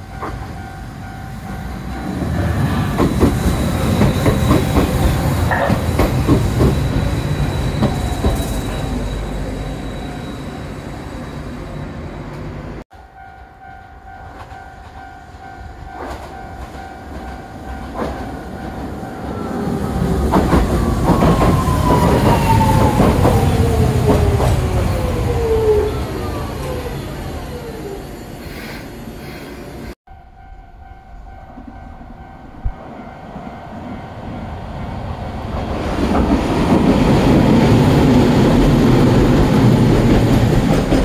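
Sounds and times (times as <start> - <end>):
train brakes whining: 0.0 - 12.5, 19.1 - 30.0
electric train rumble: 0.0 - 41.0.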